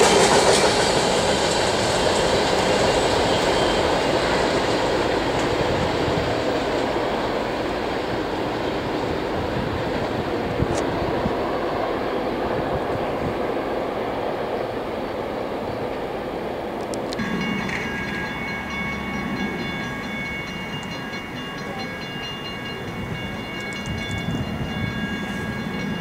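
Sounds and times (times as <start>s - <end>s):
diesel locomotive engine drone: 0.0s - 26.0s
steady high tones: 17.2s - 26.0s.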